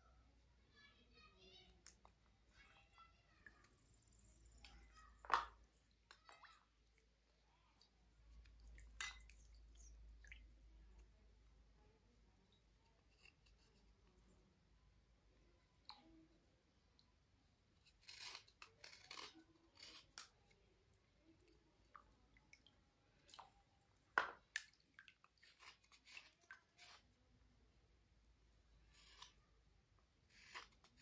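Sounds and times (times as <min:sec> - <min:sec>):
slate scraping and clicking: 0:30.3 - 0:31.0.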